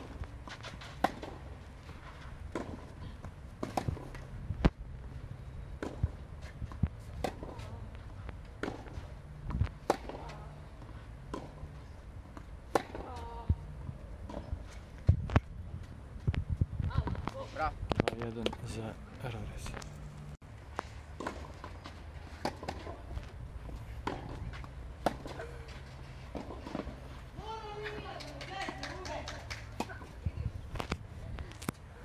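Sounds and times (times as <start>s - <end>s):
racket striking tennis ball: 0.0s - 4.8s, 5.8s - 7.7s, 8.6s - 10.3s, 12.3s - 13.1s, 21.1s - 27.1s.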